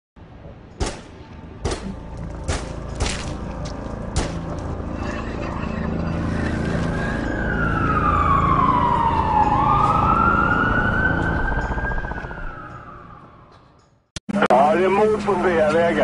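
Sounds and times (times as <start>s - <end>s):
siren wailing: 5.8s - 13.9s.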